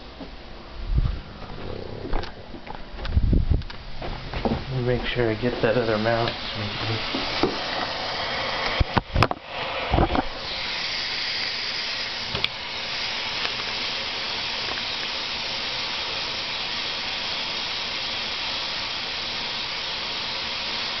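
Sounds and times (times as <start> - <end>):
water running into a basin: 10.3 - 21.0.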